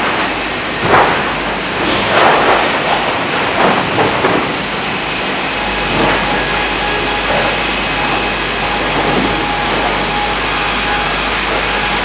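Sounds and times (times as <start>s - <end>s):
log conveyors running: 0.0s - 12.0s
timber knocking on conveyor: 0.0s - 12.0s
deep motor hum: 3.0s - 12.0s.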